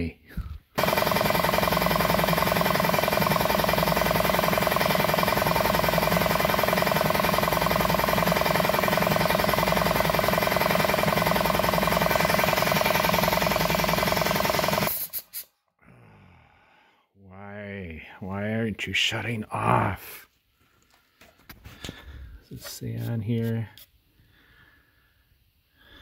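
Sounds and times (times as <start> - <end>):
air compressor running: 0.7 - 15.5.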